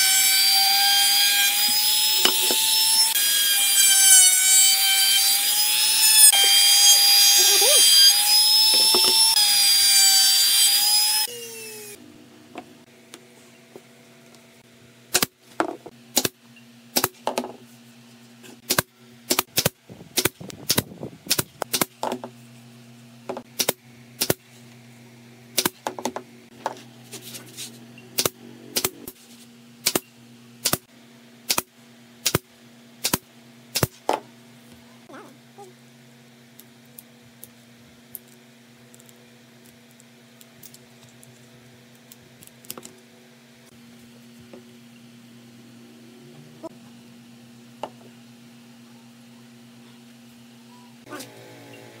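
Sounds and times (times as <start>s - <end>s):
electric router whining: 0.0s - 12.1s
steady low hum: 11.3s - 52.0s
pneumatic stapler firing: 23.6s - 24.4s, 29.8s - 30.0s.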